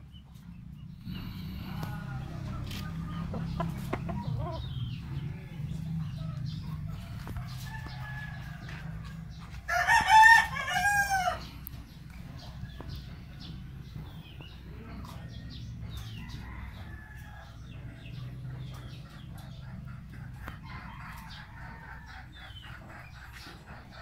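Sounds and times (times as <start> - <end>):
steady low hum: 0.0 - 24.0
clucking calls: 1.1 - 8.0, 17.7 - 24.0
rooster crowing: 9.7 - 11.5.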